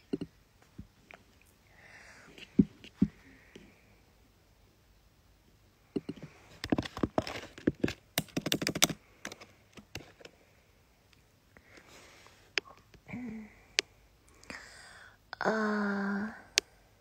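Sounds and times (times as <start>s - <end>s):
fingers tapping on phone: 8.2s - 9.4s.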